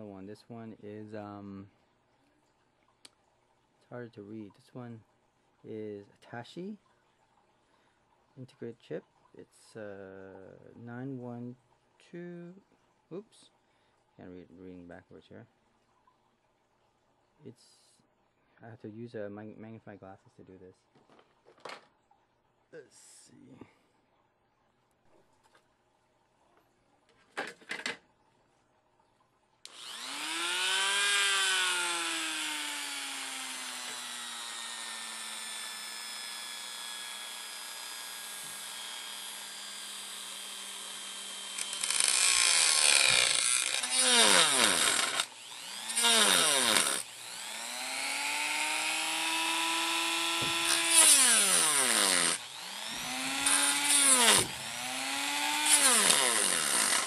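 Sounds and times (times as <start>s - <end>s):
cut-off wheel cutting circuit board: 29.7s - 57.0s
rotary tool whining: 29.7s - 57.0s.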